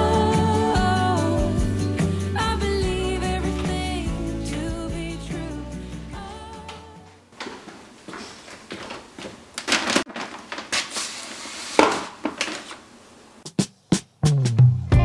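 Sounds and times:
background music: 0.0 - 7.3, 14.4 - 15.0
rustling and scraping: 6.6 - 13.0.

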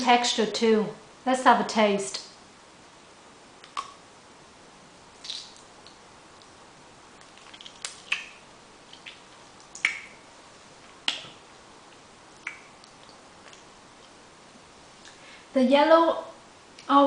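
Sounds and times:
wet mouth smacks and sucking: 5.2 - 5.7, 7.2 - 10.2, 12.4 - 14.2.

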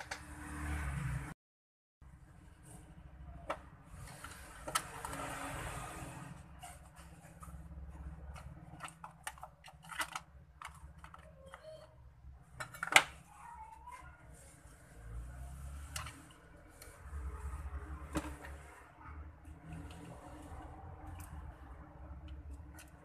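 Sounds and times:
plastic parts clicking and knocking: 6.9 - 13.3.

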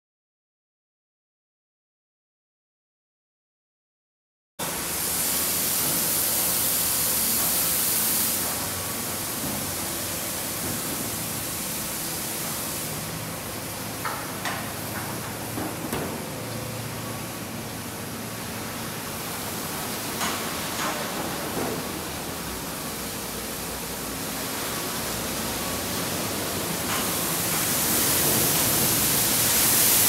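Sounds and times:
car wash water spray hiss: 4.6 - 30.0.

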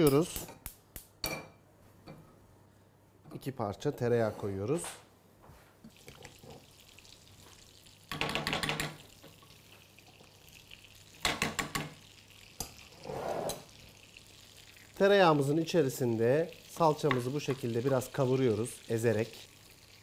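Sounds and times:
butter sizzling in a frying pan: 5.9 - 20.0.

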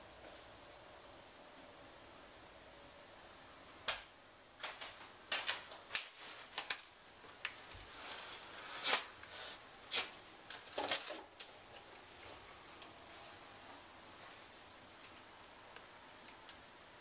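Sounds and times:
plastic packets crinkling: 4.7 - 9.1, 10.5 - 12.2.

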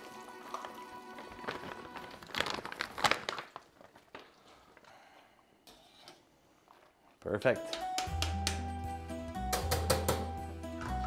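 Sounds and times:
background music: 0.0 - 2.4, 7.3 - 11.0.

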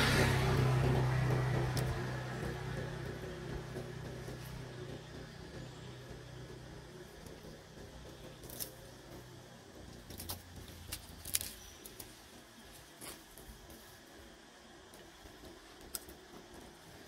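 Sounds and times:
low steady hum: 0.0 - 17.0
sharp clicks and crackles: 0.6 - 5.2, 7.0 - 13.9, 14.9 - 16.9.

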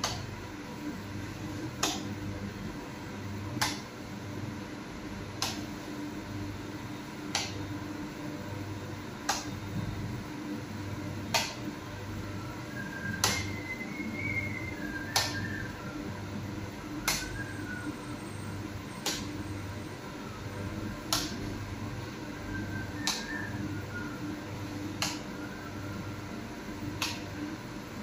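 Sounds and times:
fan humming: 0.0 - 28.0.

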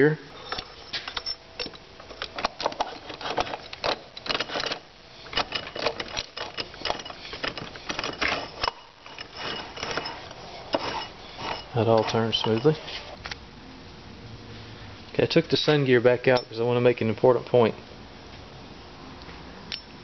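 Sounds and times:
metal gear teeth clicking and rattling: 1.2 - 12.7.

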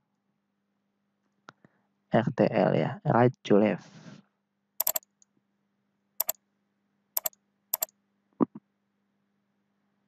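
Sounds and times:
computer keyboard keystrokes: 4.8 - 5.0, 7.2 - 7.9.

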